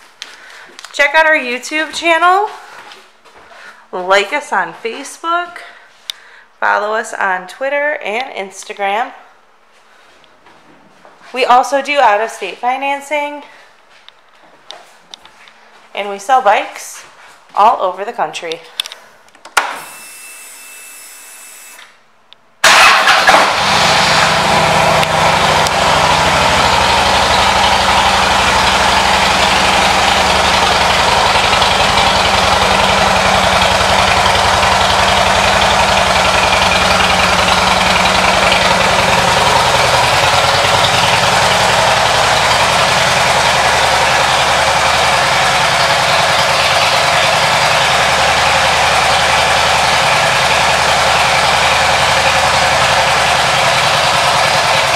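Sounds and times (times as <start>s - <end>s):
motorcycle engine starting and idling: 22.6s - 54.9s.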